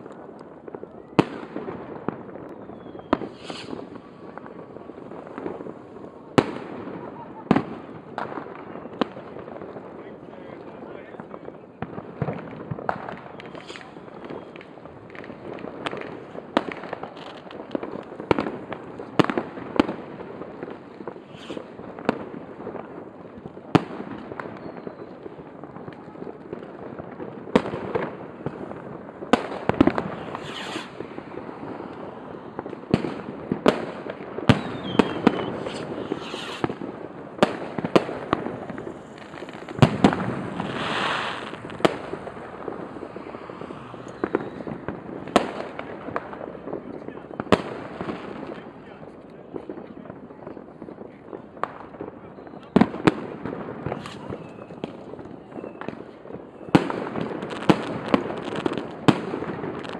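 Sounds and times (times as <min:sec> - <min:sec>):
distant crackling explosions: 0:00.0 - 0:59.9
fireworks sharp bangs: 0:00.0 - 0:59.9
rocket hisses: 0:03.3 - 0:03.9, 0:21.3 - 0:21.7, 0:30.1 - 0:31.1, 0:34.6 - 0:36.8, 0:38.7 - 0:42.4, 0:54.0 - 0:54.3.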